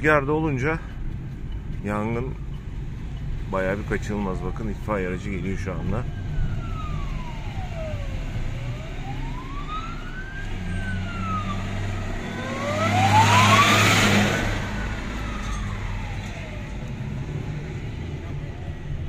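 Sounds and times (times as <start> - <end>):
truck engine and road noise: 0.0 - 19.0
fire engine siren wailing: 3.6 - 17.9.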